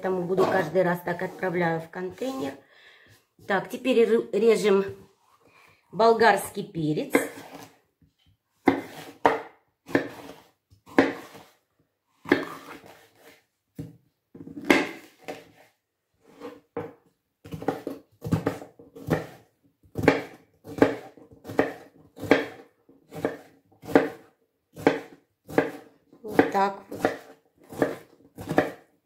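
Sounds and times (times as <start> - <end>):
knife chopping on cutting board: 7.0 - 7.8, 8.6 - 11.6, 12.2 - 13.9, 14.6 - 15.6, 17.5 - 28.9.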